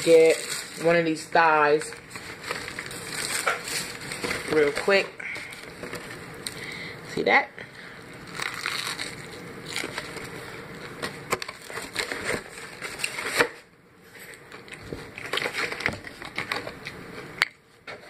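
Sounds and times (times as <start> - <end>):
fried chicken crunching when chewed: 8.2 - 10.2.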